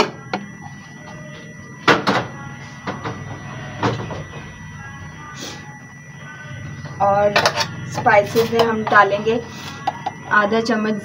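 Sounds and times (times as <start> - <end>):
kitchenware knocking and clattering: 7.3 - 7.7.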